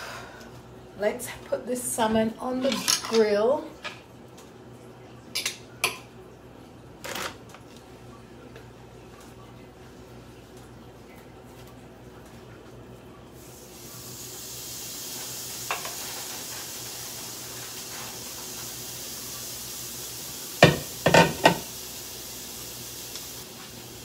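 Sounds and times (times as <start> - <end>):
kitchenware clattering: 2.5 - 4.0, 20.6 - 21.7
fish sizzling on a grill: 13.4 - 24.0.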